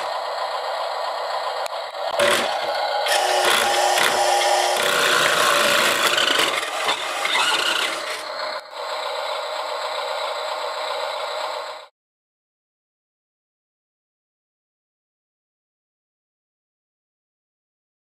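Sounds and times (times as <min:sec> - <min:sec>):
toy truck motor whirring: 0:00.0 - 0:11.9.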